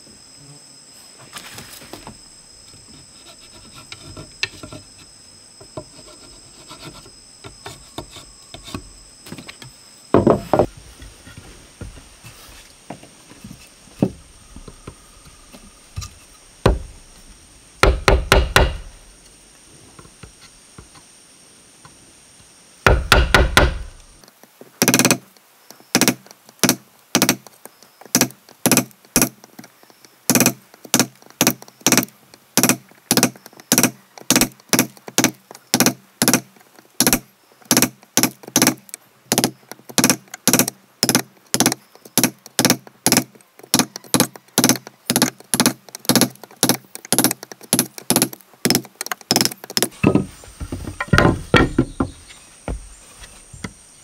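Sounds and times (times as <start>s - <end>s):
tool knocking on wood: 10.2s - 10.7s, 17.8s - 18.9s, 22.9s - 23.9s, 37.0s - 52.8s.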